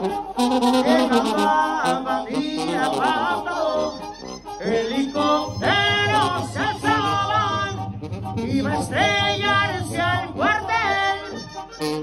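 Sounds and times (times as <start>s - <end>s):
man singing through microphone: 0.0s - 11.6s
low backing band: 0.0s - 12.0s.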